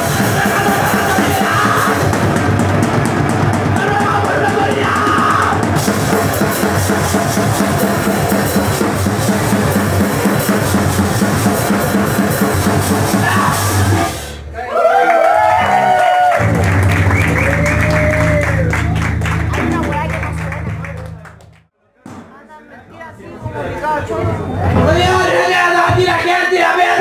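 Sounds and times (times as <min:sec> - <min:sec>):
distorted guitar: 0:00.0 - 0:14.4, 0:16.4 - 0:21.1
pounding drum kit: 0:00.0 - 0:14.4
punk band playing live: 0:00.0 - 0:14.4, 0:16.4 - 0:21.1.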